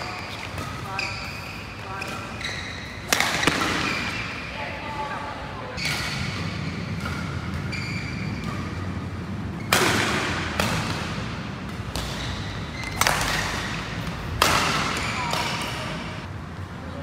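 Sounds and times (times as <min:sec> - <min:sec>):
rackets hitting shuttlecock: 0:02.0 - 0:04.5, 0:05.8 - 0:16.3.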